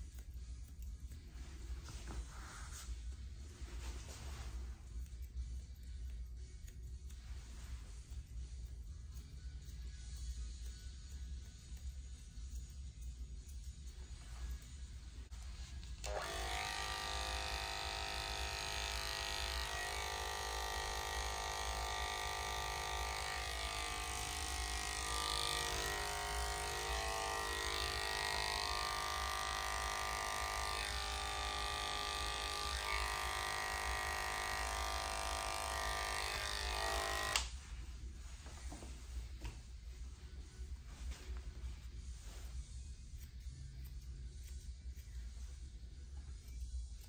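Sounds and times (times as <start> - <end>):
electric clippers buzzing: 15.8 - 37.6.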